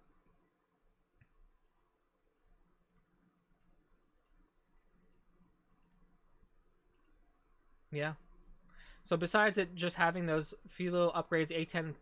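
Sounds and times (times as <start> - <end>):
computer mouse clicks: 1.2 - 4.4, 5.0 - 6.1, 6.9 - 7.2.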